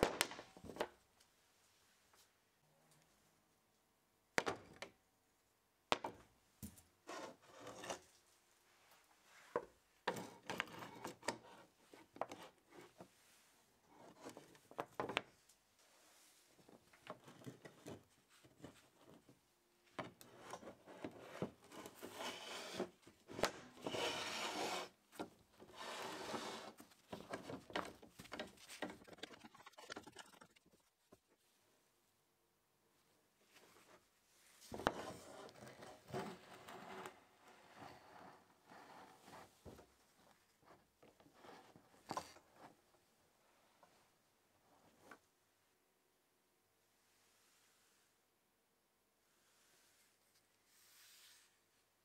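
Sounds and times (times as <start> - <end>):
parts scraping and rubbing: 20.2 - 31.0.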